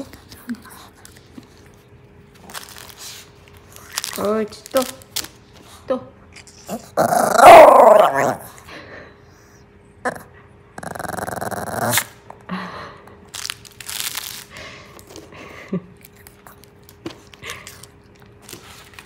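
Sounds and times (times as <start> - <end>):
dog scuffling toys on a mat: 0.0 - 6.8, 16.2 - 19.0
dog growling: 6.4 - 8.6, 10.0 - 12.2.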